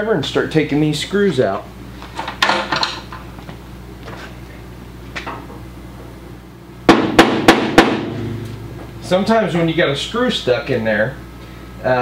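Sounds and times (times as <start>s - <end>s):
sharp knocks: 6.9s - 9.4s.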